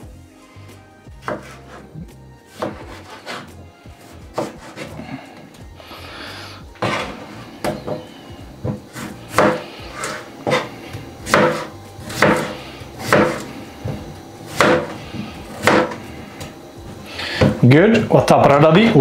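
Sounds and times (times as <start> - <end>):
knife chopping on plastic board: 1.2 - 1.9, 2.6 - 3.6, 4.3 - 5.0, 6.8 - 16.5, 17.4 - 17.6.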